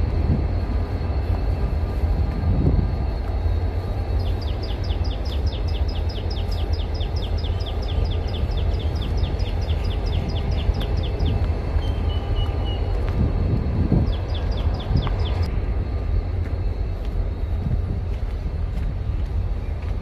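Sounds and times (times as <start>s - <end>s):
diesel locomotives idling: 0.0s - 20.0s
bird chirping rapidly: 4.2s - 12.9s, 14.0s - 15.5s.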